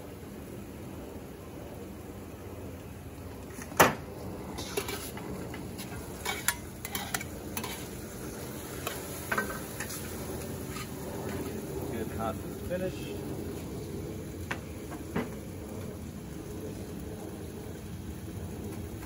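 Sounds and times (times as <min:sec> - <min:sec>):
meat sizzling in a wok: 0:01.9 - 0:19.0
utensil clanking against wok: 0:03.5 - 0:11.6.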